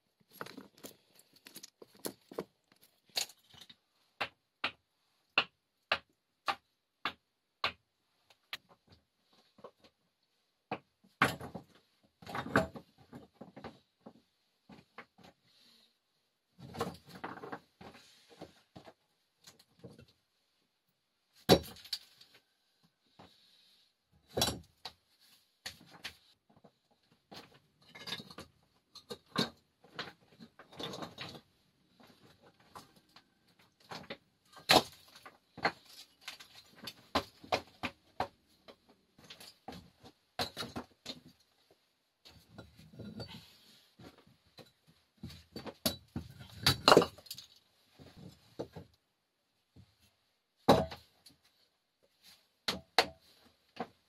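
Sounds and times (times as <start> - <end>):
hard objects knocking and clinking: 0.3 - 3.7.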